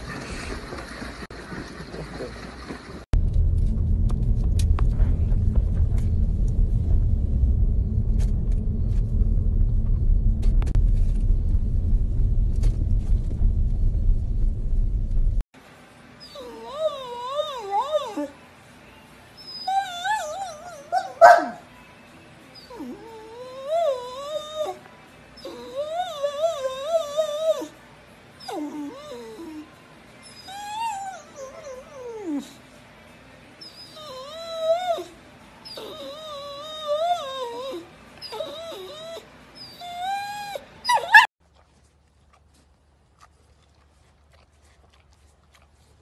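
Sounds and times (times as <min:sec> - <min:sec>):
dog howling and whining: 0:16.2 - 0:18.4, 0:19.4 - 0:21.6, 0:22.6 - 0:27.8, 0:28.4 - 0:32.6, 0:33.6 - 0:41.3
dog yelping: 0:19.5 - 0:21.6, 0:35.7 - 0:41.3.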